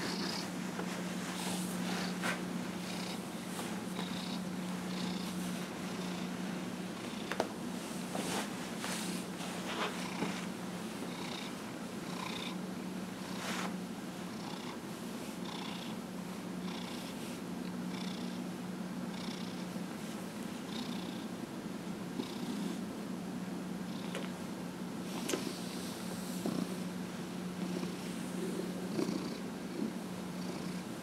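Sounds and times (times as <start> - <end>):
cat purring: 0.0 - 2.2, 2.8 - 7.4, 9.0 - 10.5, 11.1 - 12.6, 14.3 - 14.8, 15.4 - 16.0, 16.7 - 17.2, 25.1 - 26.8, 27.6 - 31.0.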